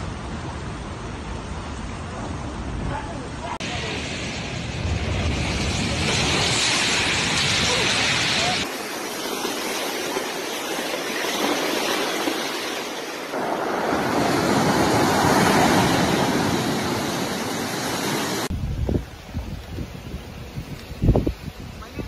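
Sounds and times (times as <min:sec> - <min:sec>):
waves crashing: 0:00.0 - 0:18.5
wind buffeting microphone: 0:13.3 - 0:22.0.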